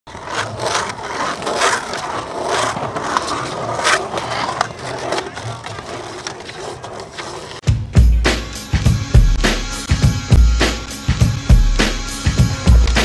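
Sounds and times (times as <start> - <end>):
skateboard wheels rolling on stone: 0.1 - 7.6, 12.2 - 13.0.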